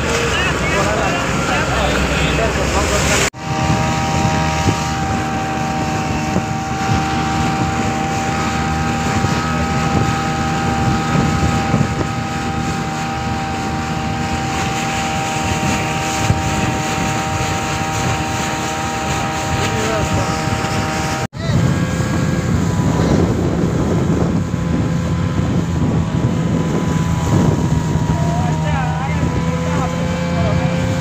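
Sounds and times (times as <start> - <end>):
speedboat engine whine: 0.0 - 31.0
water against hull: 0.0 - 31.0
wind on microphone: 0.0 - 31.0.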